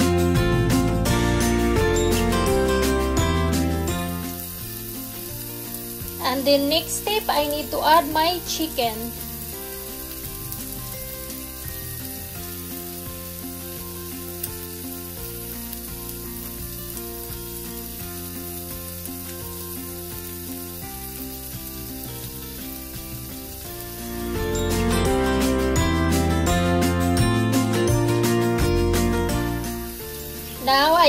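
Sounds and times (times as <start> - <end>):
background music: 0.0 - 31.0
onion sizzling in oil: 0.0 - 31.0.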